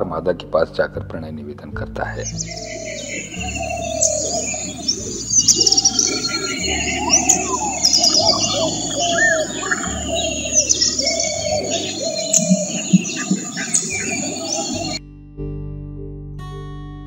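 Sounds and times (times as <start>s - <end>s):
pigeon whistling call: 2.2s - 15.0s
rapid high-pitched chirping: 2.2s - 15.0s.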